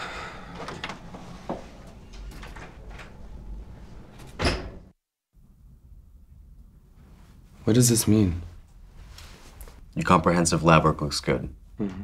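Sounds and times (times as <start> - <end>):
door sound: 0.0 - 4.9.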